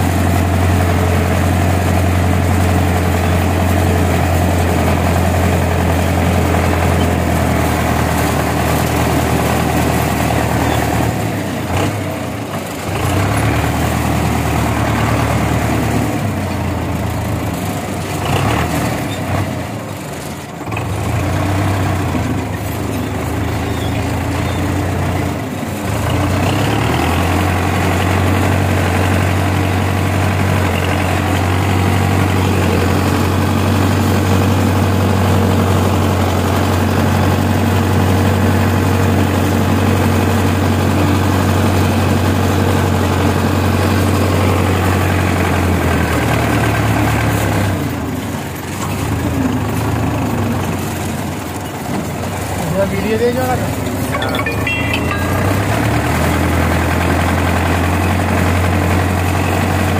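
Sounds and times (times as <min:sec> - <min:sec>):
tractor diesel engine drone: 0:00.0 - 0:59.9.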